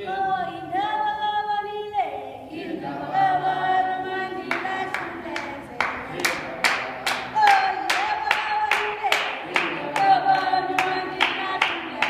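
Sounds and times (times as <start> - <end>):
group singing a cappella: 0.0 - 12.0
rhythmic hand claps: 4.2 - 12.0.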